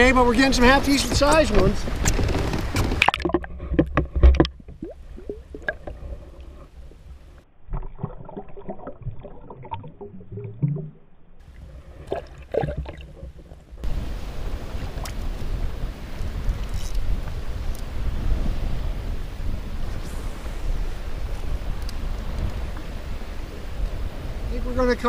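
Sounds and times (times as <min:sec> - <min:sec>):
muffled underwater sloshing: 0:00.4 - 0:24.6
sharp water splashes: 0:01.0 - 0:17.2
wind buffeting microphone: 0:11.4 - 0:25.0.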